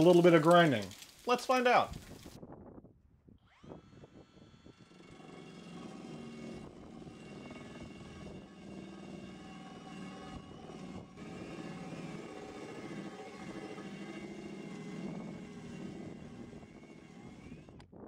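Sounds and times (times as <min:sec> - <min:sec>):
electric drill motor whine: 0:03.4 - 0:18.0
grinding wheel scraping metal: 0:04.7 - 0:17.9.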